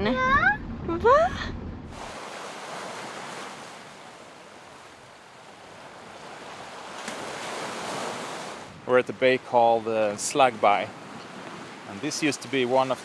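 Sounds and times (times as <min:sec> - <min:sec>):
waves washing over pebbles: 0:01.9 - 0:08.8, 0:10.1 - 0:13.0.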